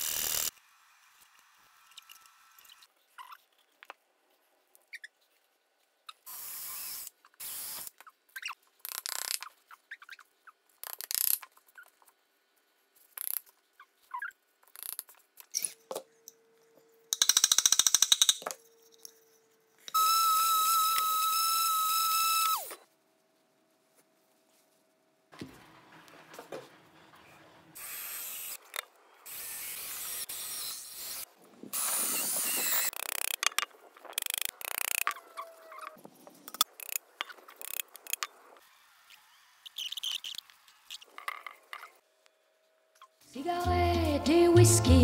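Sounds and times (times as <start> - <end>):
small electric tool motor whine: 0.0 - 2.9, 6.3 - 7.9, 19.9 - 22.8, 29.2 - 33.4, 37.6 - 41.1.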